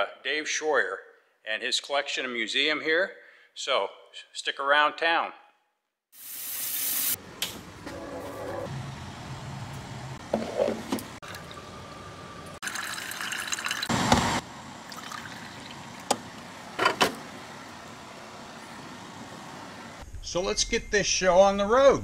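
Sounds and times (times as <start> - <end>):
coffee pouring into a ceramic cup: 11.2 - 11.7, 12.6 - 13.9, 14.9 - 16.1
liquid trickling: 11.2 - 11.8, 12.6 - 13.9, 14.8 - 16.8.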